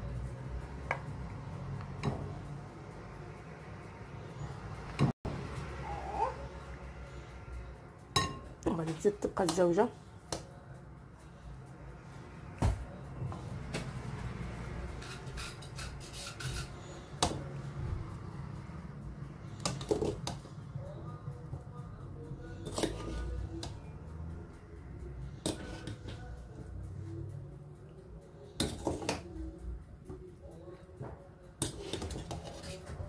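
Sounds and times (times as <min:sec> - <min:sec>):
faint music: 0:00.0 - 0:33.0
utensil scraping glass dish: 0:14.9 - 0:16.9.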